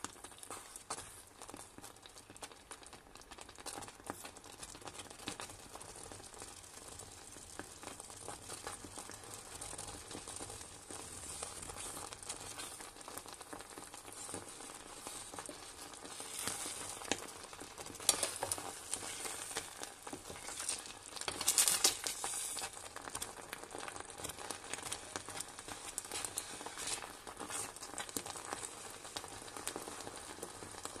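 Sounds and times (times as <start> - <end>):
food bubbling and sizzling in pot: 0.0 - 31.0
spoon stirring: 14.1 - 22.8, 24.2 - 28.0.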